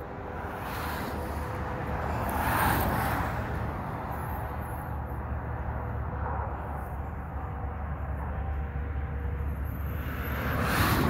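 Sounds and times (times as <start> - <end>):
vehicle passing close by: 0.0 - 4.4, 9.9 - 11.0
low rumble of road vehicles: 0.0 - 11.0.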